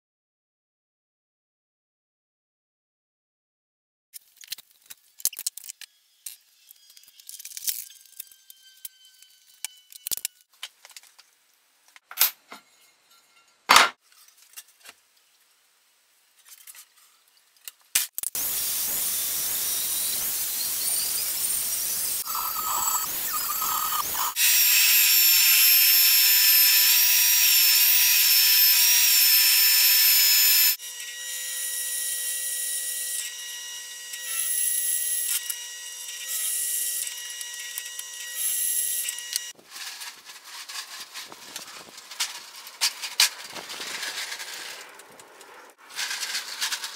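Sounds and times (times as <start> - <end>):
drill press drilling steel: 18.4 - 29.8
angle grinder cutting steel: 18.4 - 39.6.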